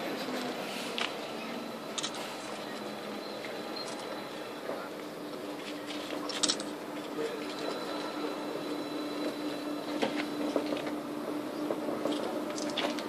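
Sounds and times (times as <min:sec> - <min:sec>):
electric tram hum: 0:00.0 - 0:13.0
faint high whine: 0:00.0 - 0:13.0.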